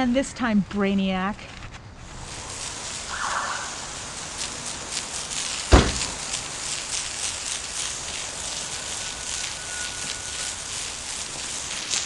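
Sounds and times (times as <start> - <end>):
outdoor noise: 0.0 - 12.0
heavy thump: 5.7 - 6.2.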